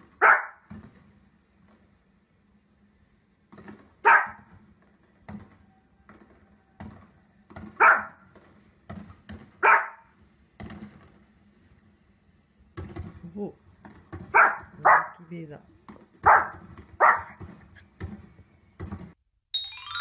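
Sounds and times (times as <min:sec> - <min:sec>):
dog barking: 0:00.2 - 0:00.7, 0:04.0 - 0:04.5, 0:07.8 - 0:08.2, 0:09.6 - 0:10.1, 0:14.3 - 0:15.3, 0:16.2 - 0:17.4.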